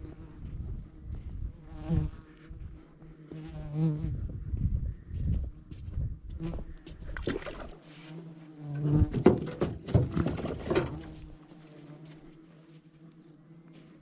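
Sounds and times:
wind buffeting microphone: 0:00.0 - 0:02.8, 0:03.9 - 0:07.3
flies buzzing: 0:07.4 - 0:14.0
knocks and clatter in boat: 0:09.1 - 0:11.2.

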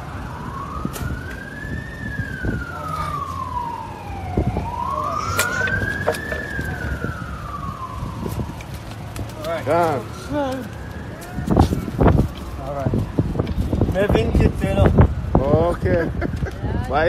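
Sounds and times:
siren wailing: 0:00.0 - 0:12.2.

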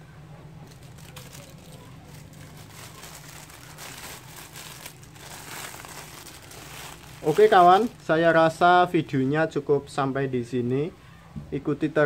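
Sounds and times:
plastic bag crinkling: 0:00.6 - 0:08.1.

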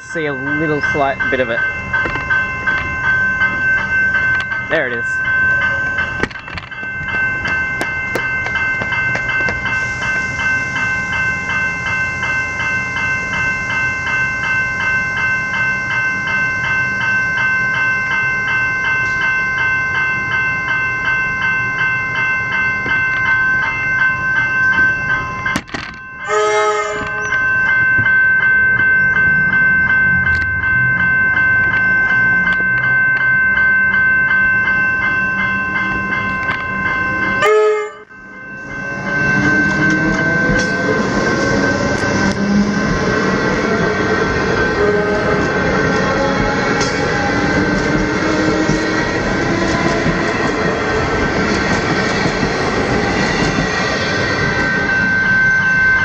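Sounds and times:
electric train rumbling: 0:00.0 - 0:56.0
level-crossing bells ringing: 0:00.0 - 0:56.0
train horn note: 0:26.3 - 0:27.3, 0:37.4 - 0:38.1.

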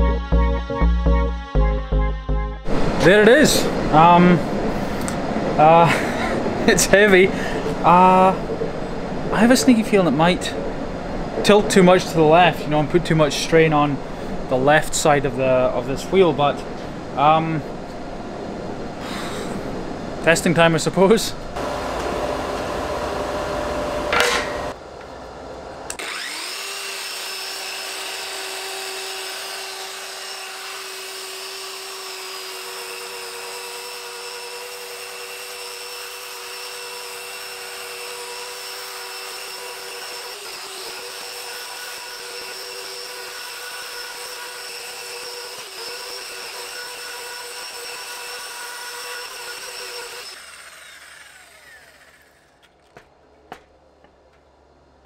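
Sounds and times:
sander whining on metal: 0:21.6 - 0:24.8, 0:25.9 - 0:52.6.

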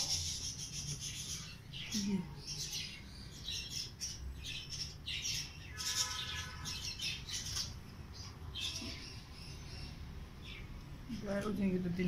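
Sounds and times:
birds chirping and squawking: 0:00.0 - 0:12.0
buzzy bird call: 0:05.5 - 0:07.6.

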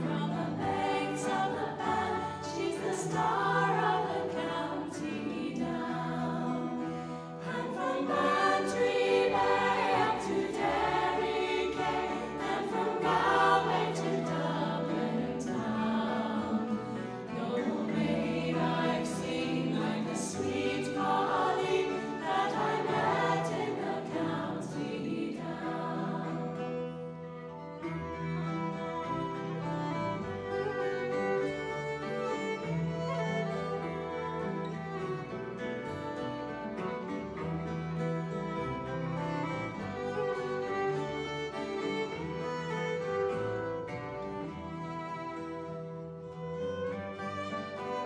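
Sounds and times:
choir singing held harmonies: 0:00.0 - 0:27.4, 0:39.0 - 0:45.6, 0:47.2 - 0:48.0.

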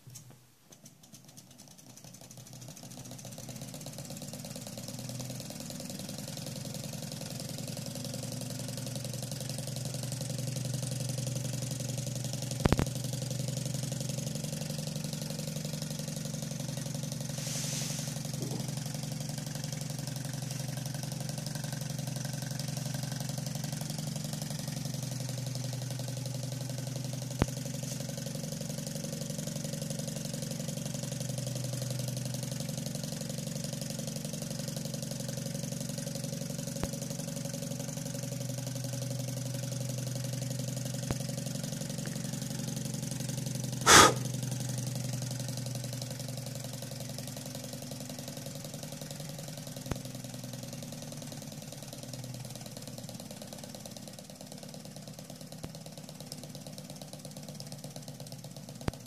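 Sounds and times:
small engine mechanical hum: 0:00.0 - 0:29.7, 0:39.2 - 0:45.8
sharp click: 0:43.9 - 0:44.3.

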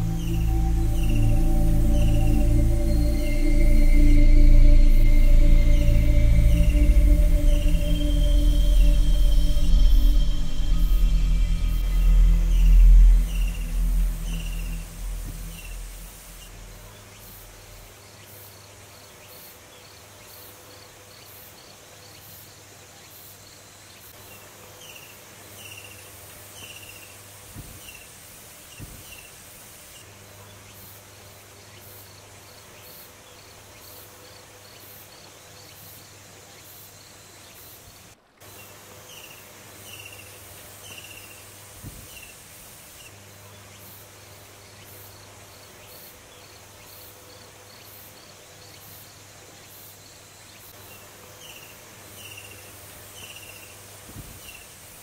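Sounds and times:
insects chirping in pulsing rhythm: 0:00.0 - 0:18.6.

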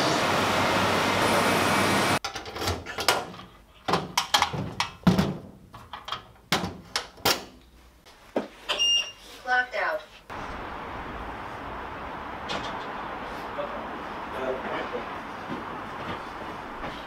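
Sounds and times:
workshop machine noise: 0:00.0 - 0:02.2, 0:10.3 - 0:17.0.

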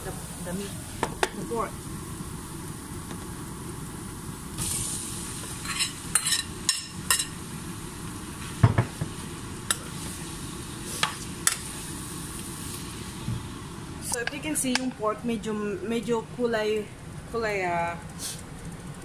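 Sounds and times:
pork sizzling in hot oil: 0:00.0 - 0:14.8.

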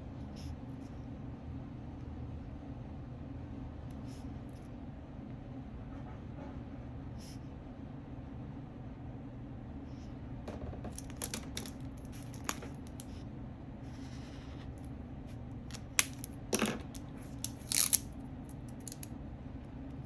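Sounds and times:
steady low hum: 0:00.0 - 0:20.0
pens clicking and tapping: 0:10.9 - 0:13.1, 0:15.7 - 0:18.0.

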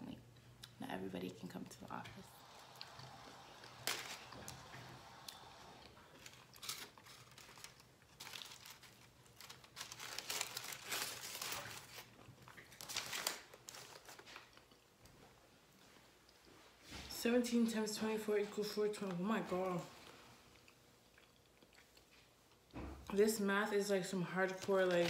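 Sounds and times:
foil wrapper crinkling: 0:03.6 - 0:04.7, 0:06.1 - 0:14.6, 0:24.4 - 0:25.0.

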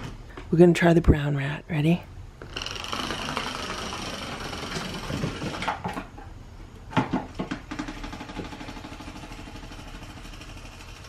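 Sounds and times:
clockwork toy motor whirring: 0:02.4 - 0:05.7, 0:08.0 - 0:11.0.

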